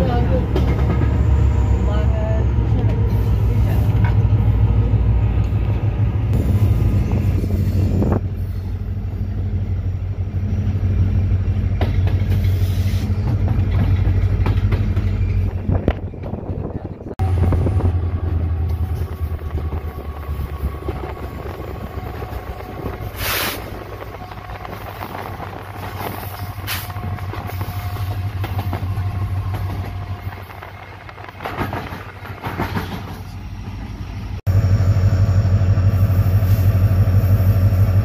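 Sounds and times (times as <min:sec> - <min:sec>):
deep locomotive engine drone: 0:00.0 - 0:38.0
short hiss: 0:23.2 - 0:23.7.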